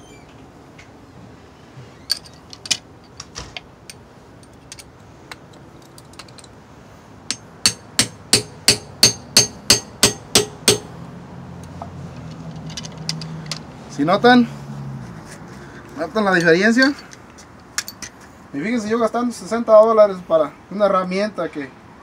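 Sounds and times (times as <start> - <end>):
hammer striking steel rod: 7.3 - 11.0.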